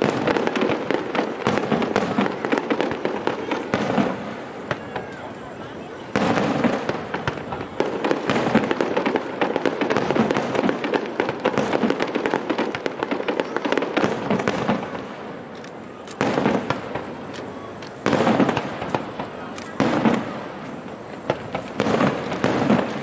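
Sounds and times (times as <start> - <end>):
fireworks bursting: 0.0 - 23.0
fireworks crackling: 0.0 - 23.0.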